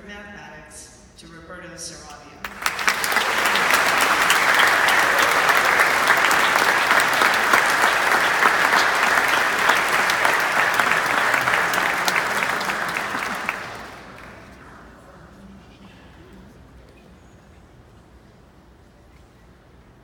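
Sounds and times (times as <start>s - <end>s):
audience applauding: 2.4s - 15.1s.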